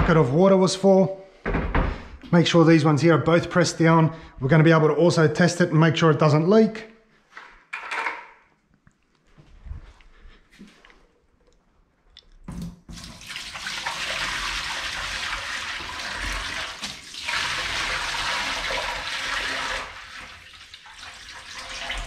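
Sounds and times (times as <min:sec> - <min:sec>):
water pouring into metal sink: 0:12.6 - 0:22.0.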